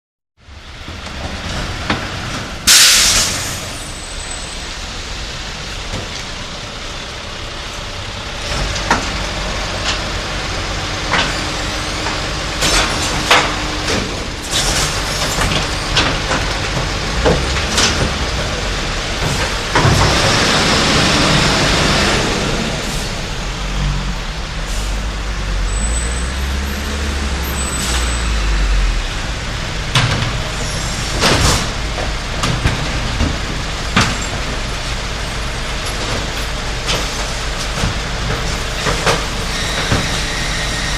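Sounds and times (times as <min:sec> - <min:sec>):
garbage truck engine rumbling: 0:00.4 - 0:40.9
air brake hiss: 0:02.7 - 0:04.0
clanks and knocks: 0:12.0 - 0:20.4, 0:29.9 - 0:30.6, 0:31.2 - 0:34.8, 0:35.8 - 0:40.2.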